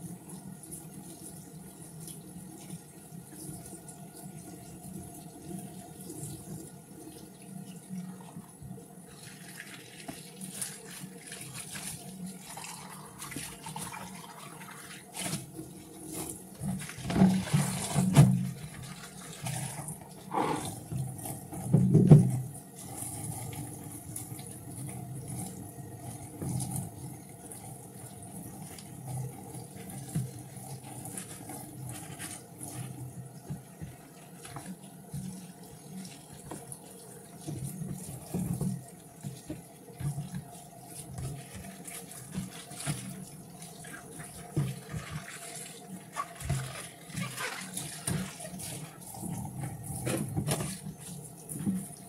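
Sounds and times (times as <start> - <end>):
water running in sink: 0.0 - 52.0
plastic tubs clattering: 15.1 - 22.5, 44.2 - 51.9.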